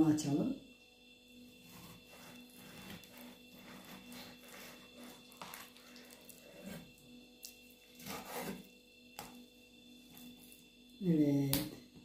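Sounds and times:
knife scraping raw liver: 1.6s - 9.4s.

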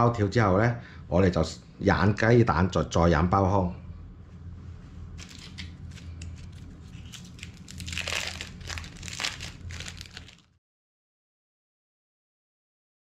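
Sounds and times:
low hum: 0.0s - 10.6s
plastic wrappers crinkling: 5.2s - 10.6s.

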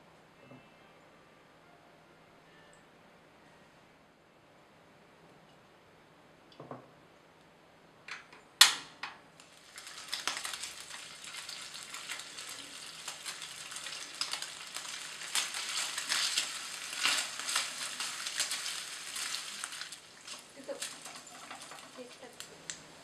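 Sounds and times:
meat sizzling in hot oil: 9.4s - 22.8s.

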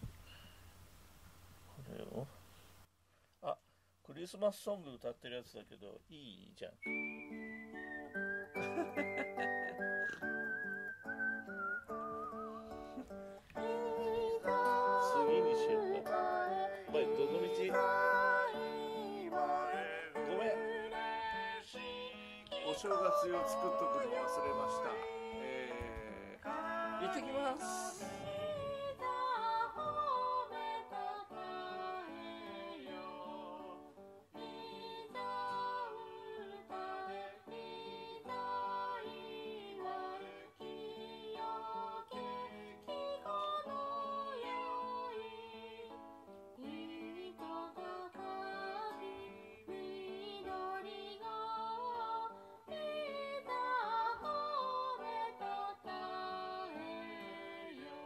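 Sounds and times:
song through small speaker: 13.5s - 46.0s, 46.6s - 58.0s.

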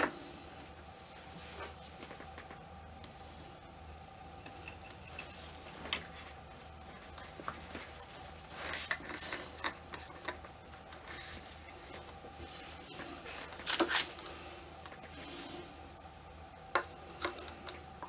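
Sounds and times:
faint steady hum: 0.0s - 18.0s
hands handling a plastic doll: 4.6s - 12.4s, 13.2s - 15.1s
plastic bags rustling: 5.1s - 15.6s.

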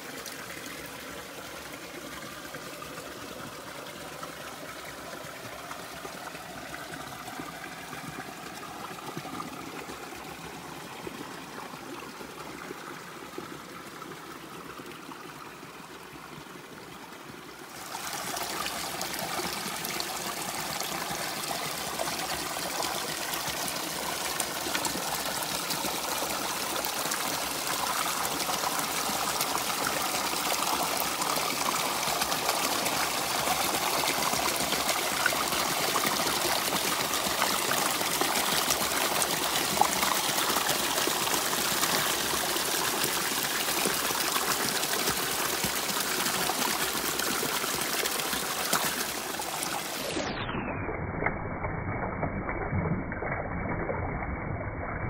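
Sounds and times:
river water rushing: 17.6s - 50.3s.

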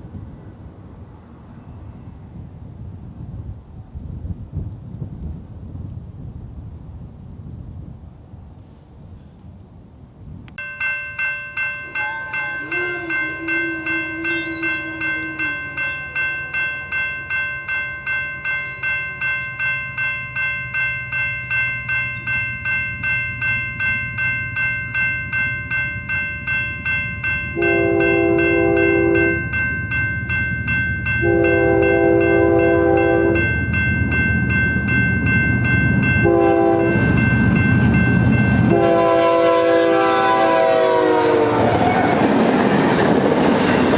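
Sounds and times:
rumble of locomotive engines: 0.0s - 43.9s
crossing warning bell ringing: 10.6s - 43.9s.

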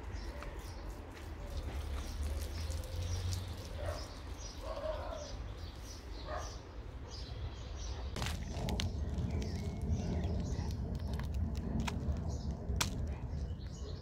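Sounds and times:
birds chirping faintly: 0.0s - 14.0s
steady low rumble: 8.1s - 14.0s.

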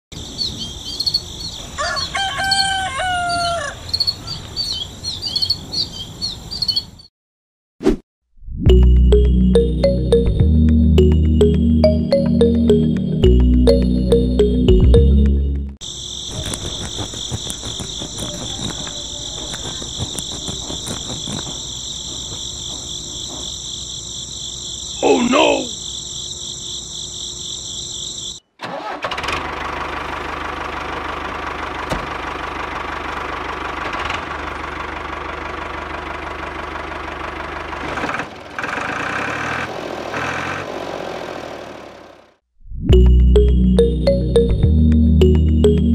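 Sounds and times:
small birds chirping: 0.1s - 2.2s, 3.7s - 7.1s, 15.8s - 28.4s
insects trilling: 0.2s - 7.0s, 15.8s - 28.5s
rooster crowing: 1.7s - 4.4s
sickle blade sawing plant stalks: 16.3s - 22.3s.

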